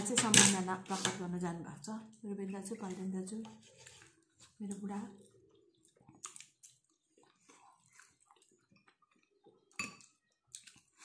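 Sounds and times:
faint chewing: 0:02.8 - 0:11.0
soft mouth and hand sounds: 0:03.6 - 0:11.0.

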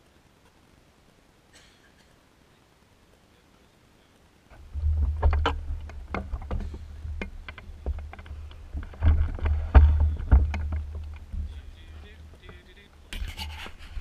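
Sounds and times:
frame knocking and rattling: 0:04.5 - 0:13.2
low rumble: 0:04.5 - 0:13.2.

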